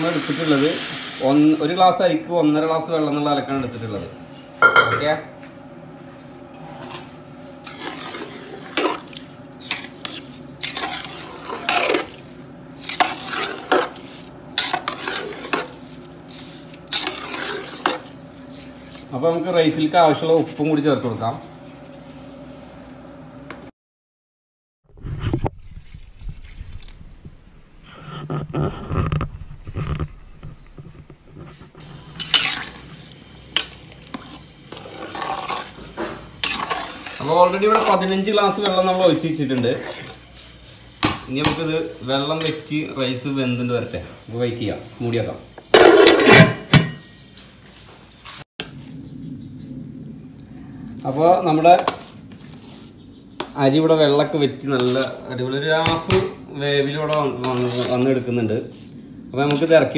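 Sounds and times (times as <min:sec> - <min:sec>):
metal spoon scraping pot: 0:06.6 - 0:12.2, 0:12.8 - 0:19.1, 0:28.3 - 0:40.3, 0:45.6 - 0:47.2, 0:54.7 - 0:55.2, 0:56.8 - 0:58.4
water boiling: 0:07.6 - 0:19.7, 0:31.8 - 0:40.2.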